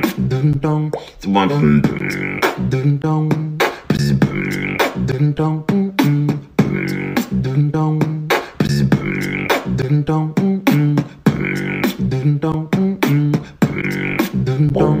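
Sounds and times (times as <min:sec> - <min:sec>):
bass-boosted ringtone music: 0:01.3 - 0:02.5, 0:13.6 - 0:15.0.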